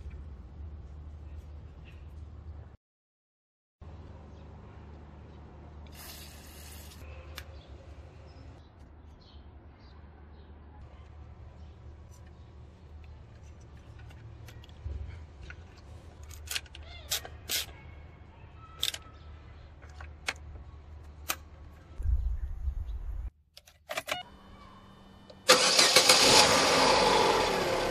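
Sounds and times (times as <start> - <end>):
low hum: 21.9 - 23.3
car engine starting and running: 25.3 - 27.9.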